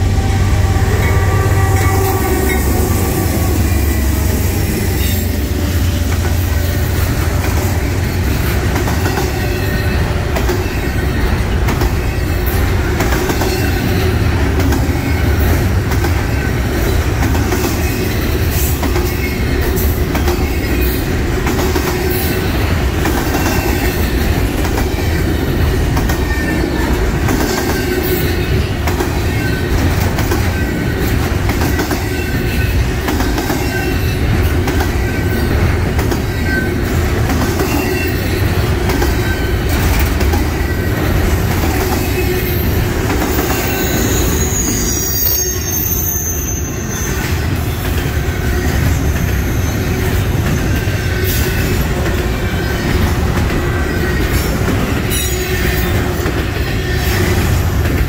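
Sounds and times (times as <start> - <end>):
train wheels rumbling on rail: 0.0 - 58.0
clacking over rail joints: 7.0 - 42.4
wheel squeal: 41.9 - 47.7, 48.4 - 51.6.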